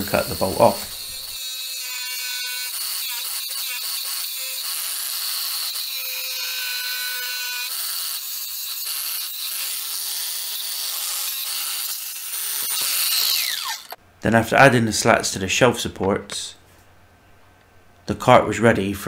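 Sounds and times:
angle grinder cutting steel: 0:00.0 - 0:14.0.

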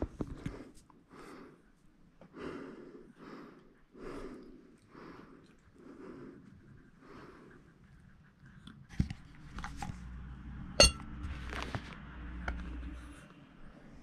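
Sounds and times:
cover clinking on ceramic plate: 0:10.8 - 0:11.0
knocks and handling noise: 0:10.8 - 0:11.9.

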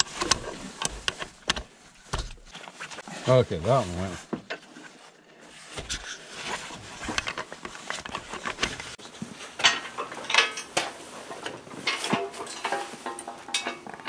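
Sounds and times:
hose couplers clicking: 0:00.0 - 0:02.5.

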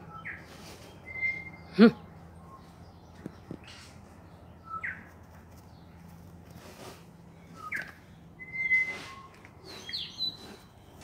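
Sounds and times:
birds whistling: 0:00.0 - 0:05.1, 0:06.6 - 0:11.0
rustling noise: 0:05.1 - 0:07.7.

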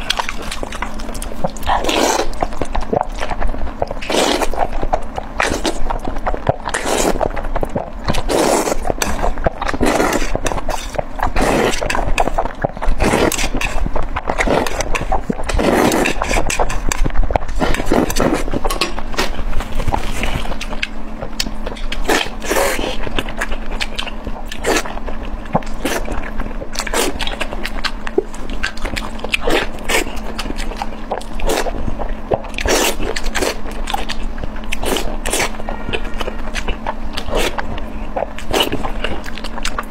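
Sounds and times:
chewing and biting food: 0:00.0 - 0:39.9
faint steady hum: 0:00.0 - 0:39.9
slurping noodles: 0:01.6 - 0:02.4, 0:04.0 - 0:04.7, 0:06.7 - 0:07.2, 0:08.1 - 0:13.8, 0:14.4 - 0:16.8, 0:32.6 - 0:33.6.

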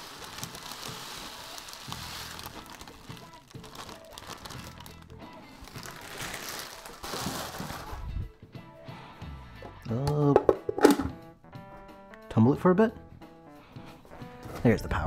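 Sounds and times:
granular media pouring: 0:00.0 - 0:05.0
plastic bag crinkling: 0:00.0 - 0:08.1
background music: 0:00.0 - 0:15.0.

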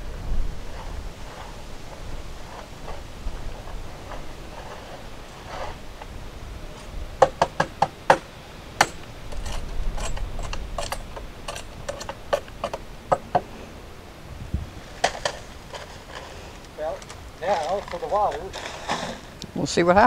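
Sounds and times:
stones knocking against boards: 0:07.2 - 0:09.0.

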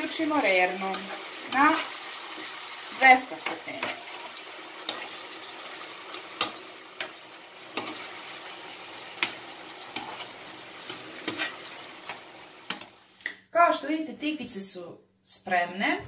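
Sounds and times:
meat sizzling in a frying pan: 0:00.0 - 0:13.2
metal spoon scraping a pan: 0:00.2 - 0:13.0.

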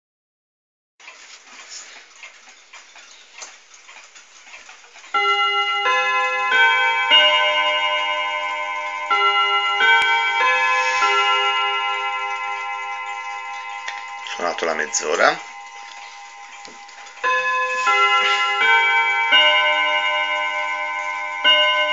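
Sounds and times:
clock ticks and clicks: 0:01.0 - 0:21.9
clock chime melody: 0:05.1 - 0:21.9.

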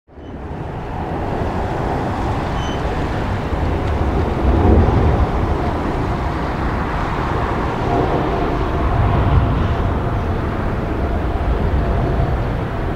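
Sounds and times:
jet engines roaring: 0:00.2 - 0:12.9.

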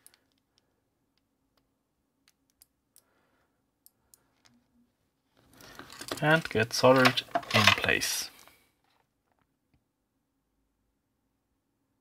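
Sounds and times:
faint clicks of small parts: 0:00.0 - 0:04.7, 0:05.4 - 0:09.8.

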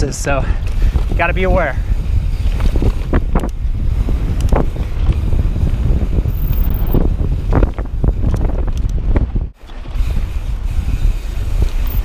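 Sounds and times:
wind buffeting microphone: 0:00.0 - 0:12.0
bike rattling clicks and knocks: 0:00.5 - 0:12.0.

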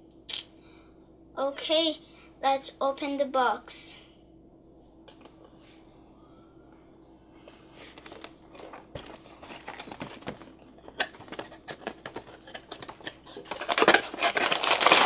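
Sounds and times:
crinkling rustle: 0:07.4 - 0:15.0.

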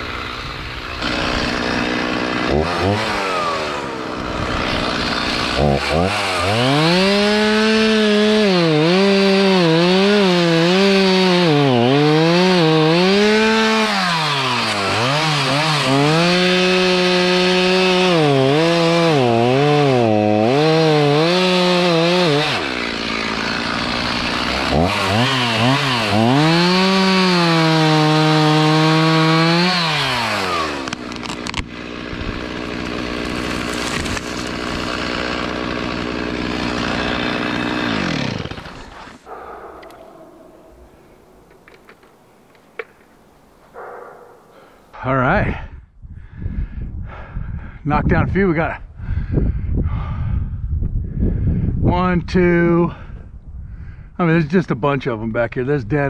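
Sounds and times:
chainsaw cutting wood: 0:00.0 - 0:40.2.

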